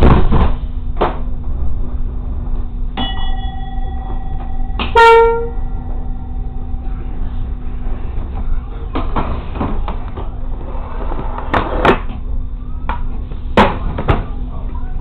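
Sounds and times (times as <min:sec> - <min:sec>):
railcar engine idling: 0:00.6 - 0:10.7.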